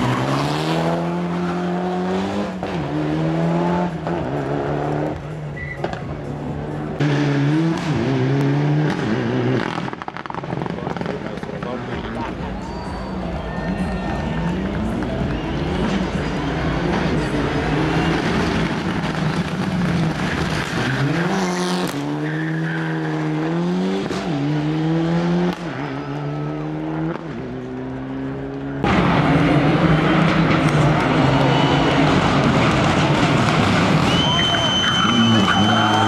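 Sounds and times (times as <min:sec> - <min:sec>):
rally car engines revving: 0:00.0 - 0:36.0.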